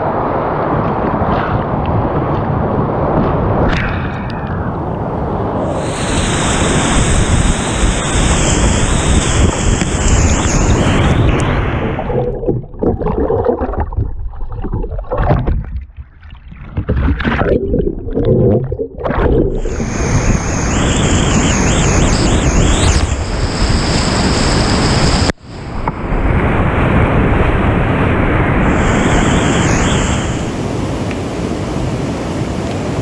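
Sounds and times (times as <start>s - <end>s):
muffled underwater rushing: 5.4s - 30.8s.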